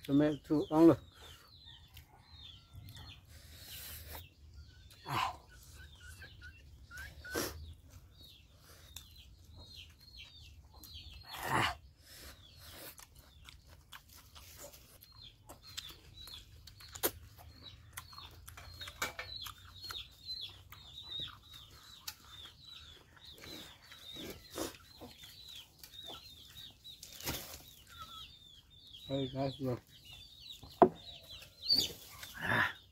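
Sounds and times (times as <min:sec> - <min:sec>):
chickens peeping: 0:00.0 - 0:32.9
person chewing: 0:12.1 - 0:26.6
lip smacks: 0:12.9 - 0:22.6.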